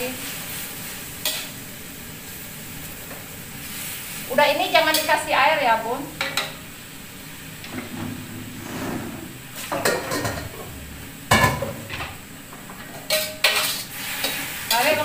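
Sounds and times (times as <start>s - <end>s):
low sizzle from wok: 0.0s - 15.0s
metal kitchenware clattering: 7.7s - 10.7s, 12.9s - 13.9s.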